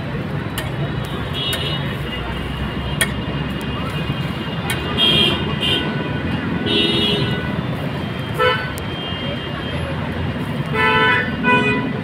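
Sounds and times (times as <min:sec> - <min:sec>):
street traffic rumbling: 0:00.0 - 0:12.0
vehicle horns honking: 0:01.1 - 0:03.2, 0:03.8 - 0:09.8, 0:10.7 - 0:12.0.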